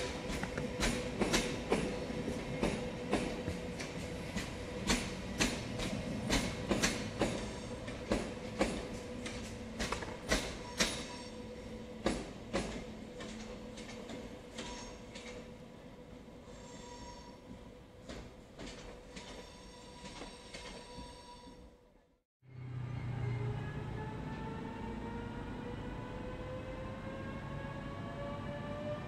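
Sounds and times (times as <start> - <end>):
train wheels clicking over rail joints: 0.0 - 15.5, 18.0 - 21.2
train wheel squeal: 0.0 - 15.6, 16.4 - 21.6.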